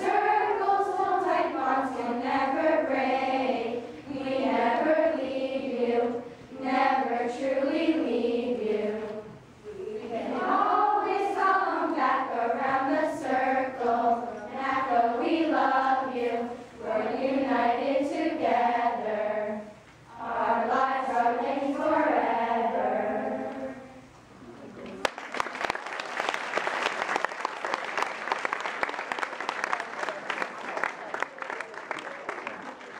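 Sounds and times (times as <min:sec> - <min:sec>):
girls singing together: 0:00.0 - 0:24.2.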